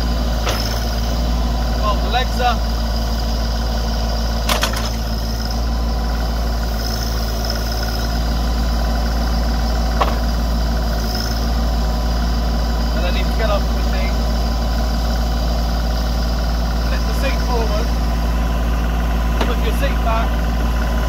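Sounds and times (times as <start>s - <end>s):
backhoe hydraulics: 0.0s - 21.0s
tractor diesel engine running: 0.0s - 21.0s
metal clank: 0.4s - 1.0s, 4.4s - 5.1s, 9.9s - 10.4s.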